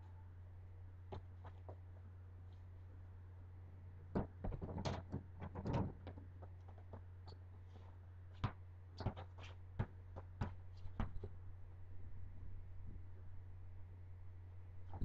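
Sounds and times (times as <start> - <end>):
steady low hum: 0.0 - 15.0
ball thudding on paving slabs: 8.3 - 11.3.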